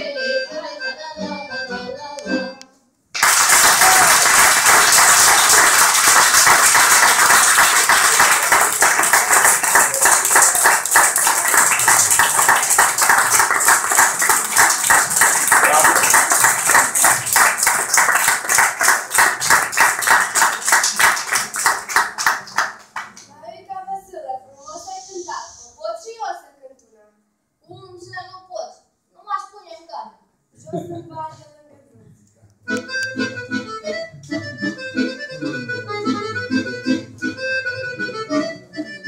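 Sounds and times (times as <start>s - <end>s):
audience applauding: 3.2s - 23.2s.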